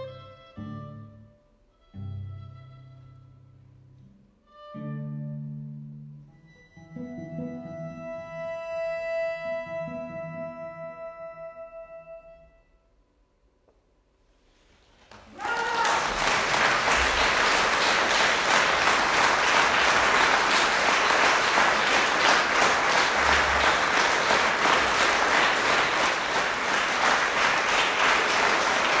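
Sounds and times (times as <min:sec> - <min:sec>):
audience applauding: 0:15.0 - 0:29.0.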